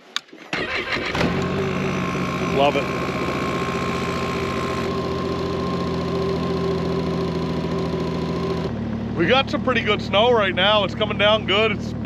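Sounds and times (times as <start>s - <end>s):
snowmobile engine idling: 1.2s - 12.0s.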